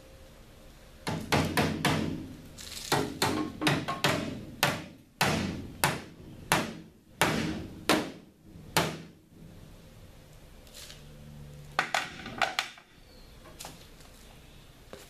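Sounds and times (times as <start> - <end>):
hammer striking sheet metal: 2.9 - 8.2.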